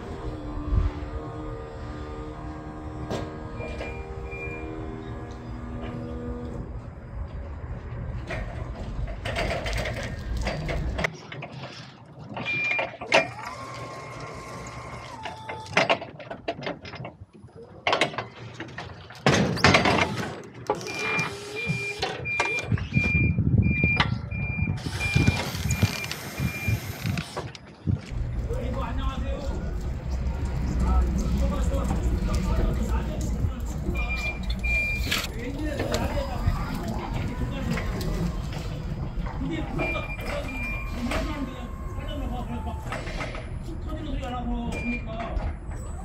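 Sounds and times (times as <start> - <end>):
reversing alarm beeping: 3.5 - 4.9, 20.8 - 27.1, 33.8 - 35.3, 39.6 - 43.8, 44.7 - 46.0
forklift engine running: 28.1 - 43.7.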